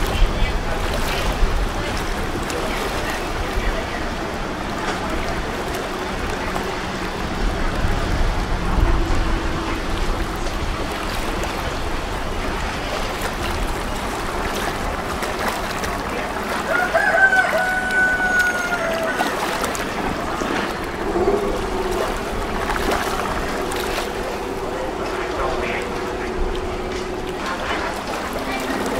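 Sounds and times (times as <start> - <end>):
low steady hum: 0.0 - 28.9
outdoor background noise: 0.0 - 28.9
long drawn-out call: 16.6 - 19.8.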